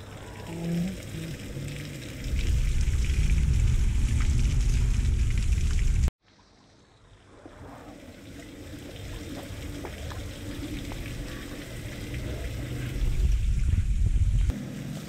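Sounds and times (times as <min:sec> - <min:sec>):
low rumble: 0:00.0 - 0:06.1, 0:09.7 - 0:14.5
water dripping into puddle: 0:00.0 - 0:06.1, 0:08.3 - 0:13.3.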